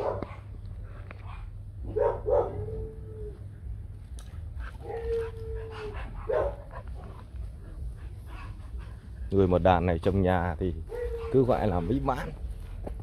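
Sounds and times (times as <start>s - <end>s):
dog barking: 0.0s - 0.5s, 1.8s - 3.0s, 5.8s - 6.8s
dog yipping: 1.9s - 3.4s, 4.8s - 6.7s, 10.8s - 12.1s
dog whining: 2.0s - 3.5s, 4.8s - 6.6s, 10.8s - 12.0s.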